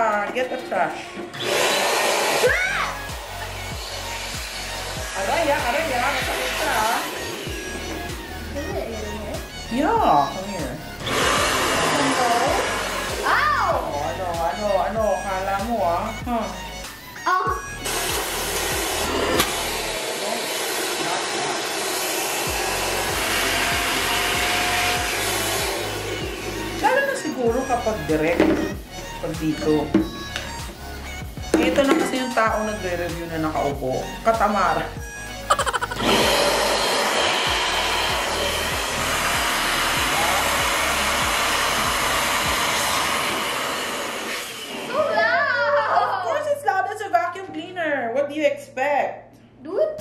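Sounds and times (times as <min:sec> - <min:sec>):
vacuum cleaner running: 0:01.2 - 0:14.6, 0:17.8 - 0:28.8, 0:35.5 - 0:45.2.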